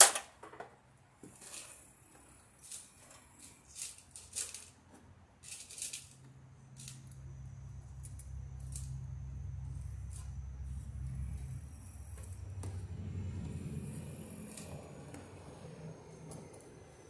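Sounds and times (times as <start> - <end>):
low steady hum: 0.8 - 17.0
clicks and rattles of small tools: 2.6 - 7.3, 7.9 - 9.1.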